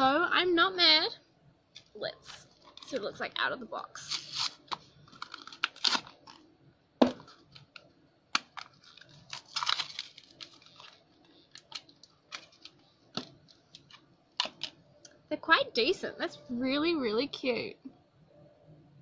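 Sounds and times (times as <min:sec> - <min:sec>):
packaging rustling and crinkling: 0:04.0 - 0:06.5, 0:07.1 - 0:14.8.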